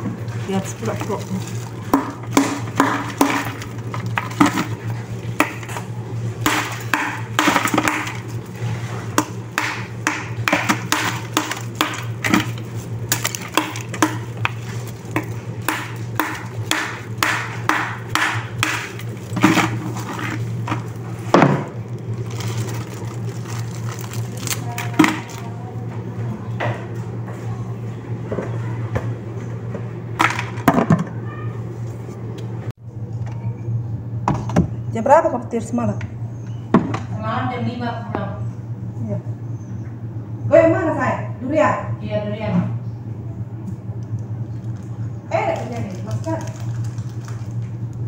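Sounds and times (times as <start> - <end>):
steady low hum: 0.0 - 48.0
plastic bags crinkling: 0.4 - 5.7, 6.3 - 8.8, 10.6 - 17.7, 18.4 - 25.6, 44.6 - 47.9.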